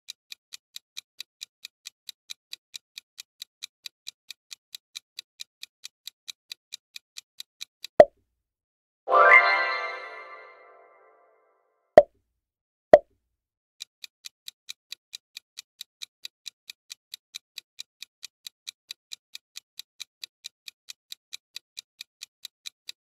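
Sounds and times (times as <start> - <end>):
countdown timer ticking: 9.1 - 11.2.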